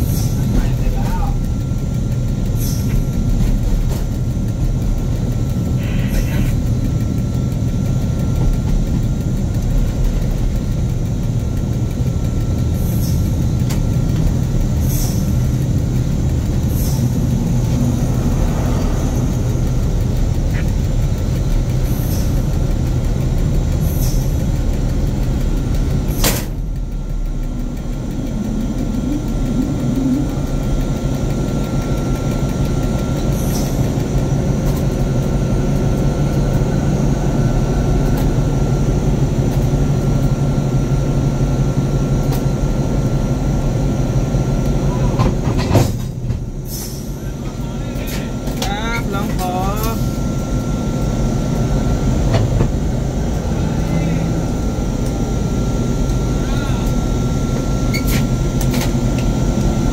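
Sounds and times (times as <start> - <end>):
locomotive engine rumble: 0.0 - 59.9.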